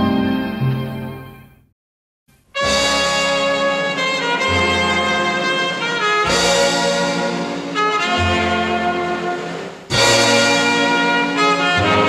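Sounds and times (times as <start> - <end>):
brass band music on vinyl: 2.3 - 12.0.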